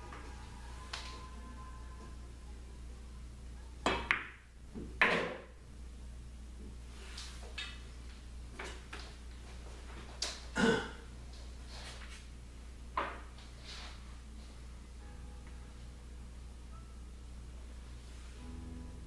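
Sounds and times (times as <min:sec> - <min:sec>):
cue striking ball: 0:03.8 - 0:05.6
pool balls knocking: 0:03.8 - 0:05.6.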